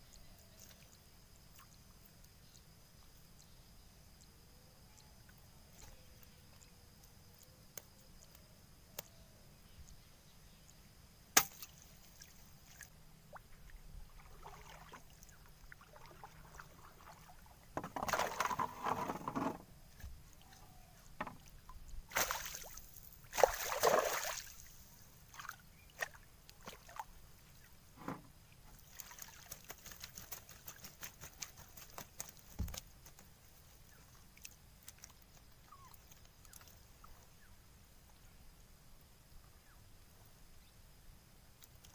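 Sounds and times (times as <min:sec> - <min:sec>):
water splashing off net: 0:22.1 - 0:24.7
knocks against wooden boat: 0:28.0 - 0:28.3.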